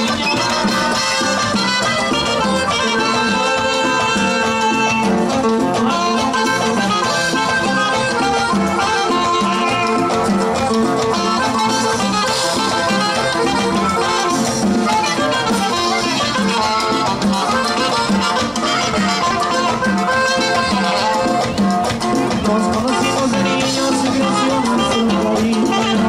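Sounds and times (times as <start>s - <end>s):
accordion melody: 0.0s - 26.0s
bouncing bass line: 0.0s - 26.0s.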